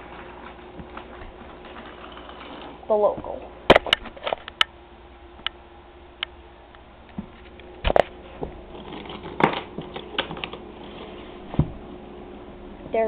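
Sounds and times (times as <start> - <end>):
toy train motor hum: 1.6 - 2.8.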